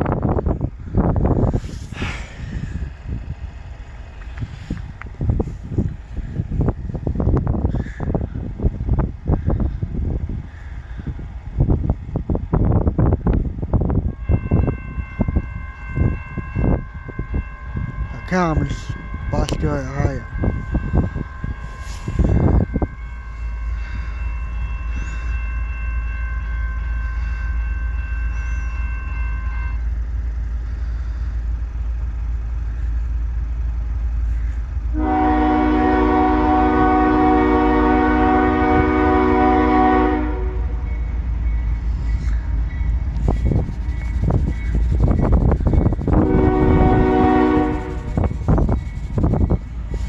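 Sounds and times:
locomotive horn blasts: 0:14.0 - 0:23.7, 0:24.6 - 0:29.9, 0:34.9 - 0:40.8, 0:46.1 - 0:48.4.

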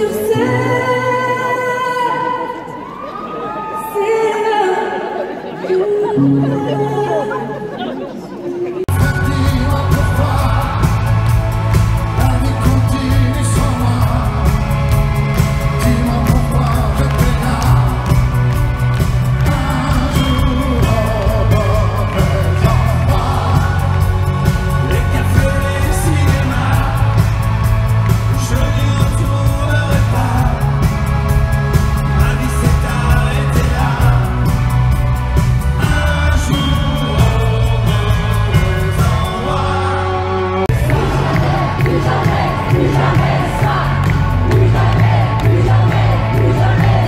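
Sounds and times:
loud pop band playing: 0:00.0 - 0:03.0, 0:08.7 - 0:47.0
men singing into microphones: 0:08.7 - 0:11.4, 0:12.0 - 0:14.9, 0:15.7 - 0:18.3, 0:19.3 - 0:30.9, 0:32.0 - 0:34.6, 0:35.7 - 0:47.0.

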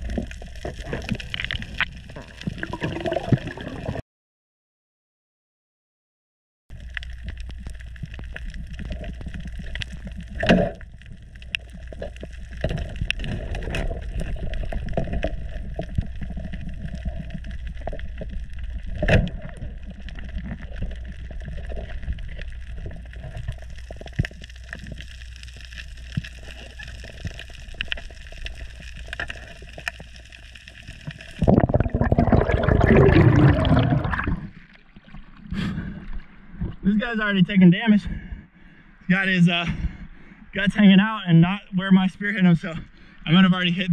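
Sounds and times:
crackling clicks: 0:00.0 - 0:03.5, 0:06.7 - 0:34.8
rush of water and bubbles: 0:00.0 - 0:04.0, 0:06.7 - 0:36.8
low underwater rumble: 0:06.7 - 0:36.9.

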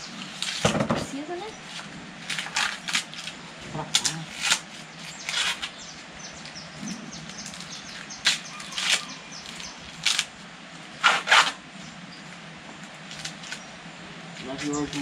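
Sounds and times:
corn husks tearing: 0:00.1 - 0:00.7, 0:01.7 - 0:05.8, 0:07.3 - 0:10.4, 0:12.9 - 0:13.7, 0:14.4 - 0:15.0.

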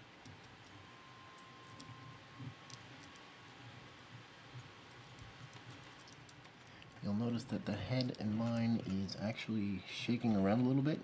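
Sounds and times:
small clicks and handling noise: 0:00.2 - 0:03.3, 0:04.0 - 0:07.1, 0:07.9 - 0:09.3.

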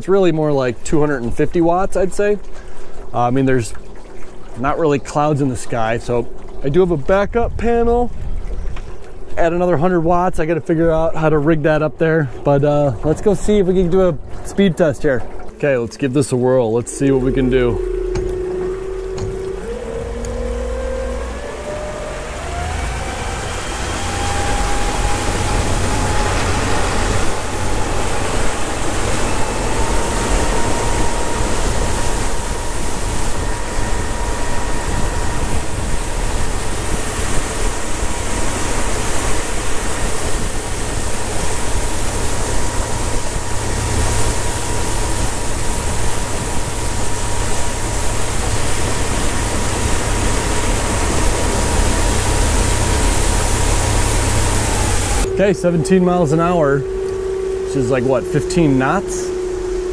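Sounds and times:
rush of wind and water: 0:00.0 - 0:59.9
electric outboard motor whine: 0:13.1 - 0:59.9.

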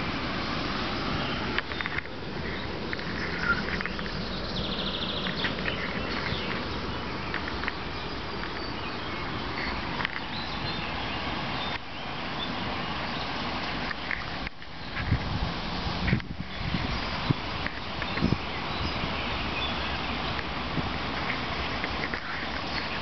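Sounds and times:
steady rushing noise: 0:00.0 - 0:23.0
faint bird chirps: 0:01.2 - 0:13.3.

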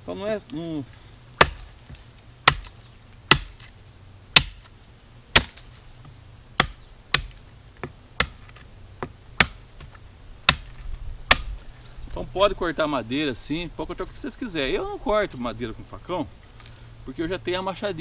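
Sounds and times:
machete chopping wood: 0:01.4 - 0:03.7, 0:04.4 - 0:04.7, 0:05.3 - 0:11.6.

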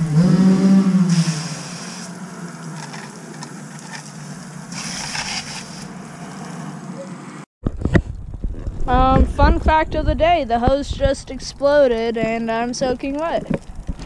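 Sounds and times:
dirt bike engine revving: 0:00.0 - 0:03.1
garden hose spraying: 0:00.6 - 0:06.7.

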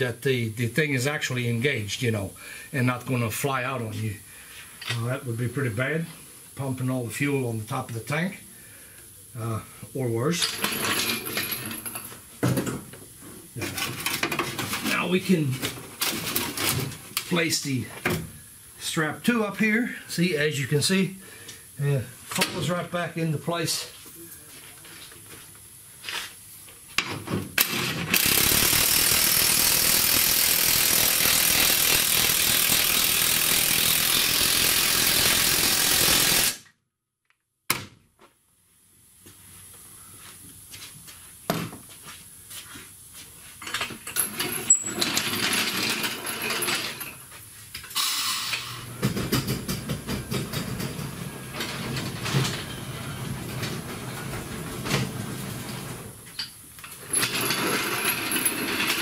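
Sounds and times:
loud hissing tool: 0:28.2 - 0:36.6, 0:48.0 - 0:48.9.

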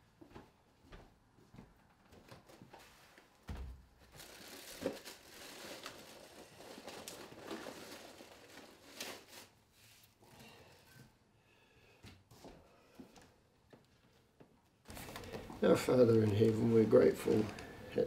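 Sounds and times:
paper wrapper crinkling: 0:04.0 - 0:10.1, 0:14.9 - 0:18.0.

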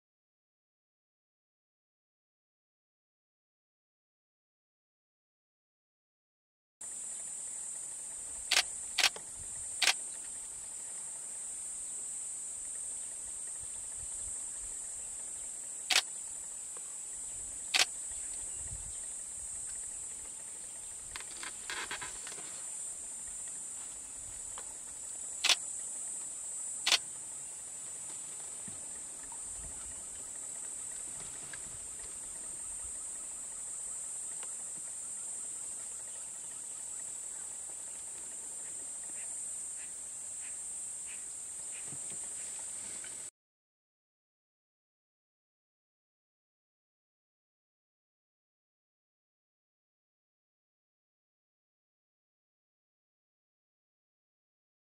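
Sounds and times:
insect chorus buzzing: 0:06.8 - 0:43.3
sharp short clicks: 0:08.5 - 0:09.2, 0:15.9 - 0:16.1, 0:25.4 - 0:25.6, 0:26.8 - 0:27.0.

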